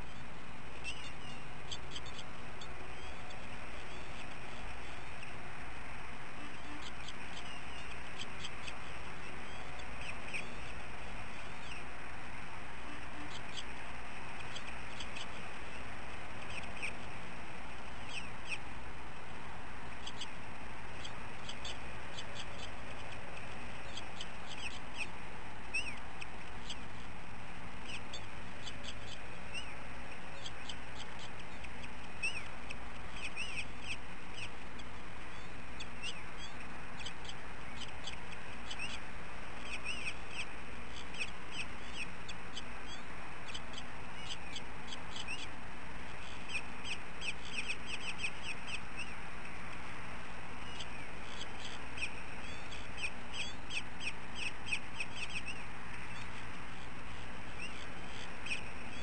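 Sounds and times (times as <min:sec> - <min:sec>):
steady background hiss: 0:00.0 - 0:59.0
high bird chirps: 0:00.8 - 0:05.3, 0:21.0 - 0:26.9, 0:27.8 - 0:34.6, 0:39.6 - 0:45.6, 0:46.2 - 0:49.2, 0:50.6 - 0:59.0.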